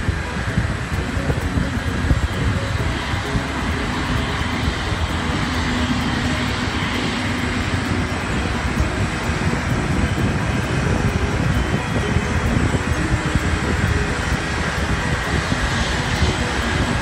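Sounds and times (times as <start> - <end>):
jet turbine noise: 0.0 - 17.0
wind rumbling on microphone: 0.0 - 17.0.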